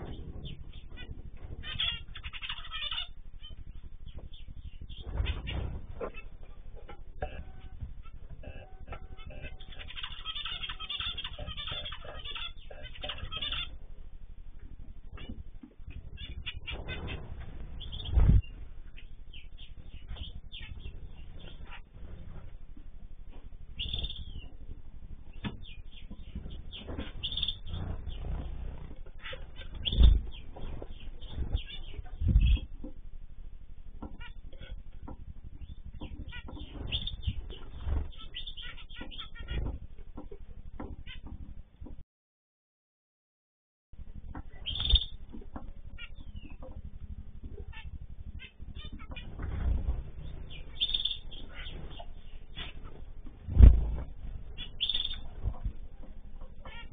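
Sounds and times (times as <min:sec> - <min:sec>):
birds chirping and calling: 0:00.0 - 0:42.0, 0:44.0 - 0:56.9
dull low thumps: 0:03.6 - 0:08.1, 0:14.8 - 0:34.2, 0:44.0 - 0:56.4.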